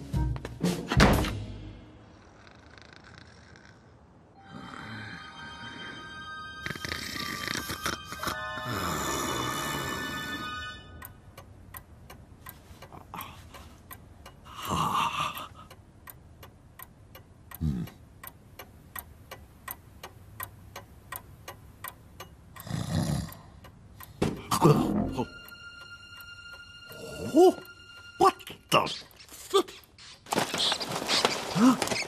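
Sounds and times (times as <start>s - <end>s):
clock ticking: 7.8s - 30.0s.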